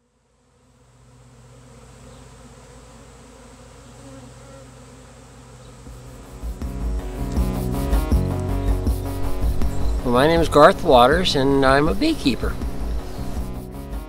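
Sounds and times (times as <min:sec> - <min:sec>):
honeybees buzzing: 0:00.0 - 0:14.0
music with steady beat: 0:05.9 - 0:14.0.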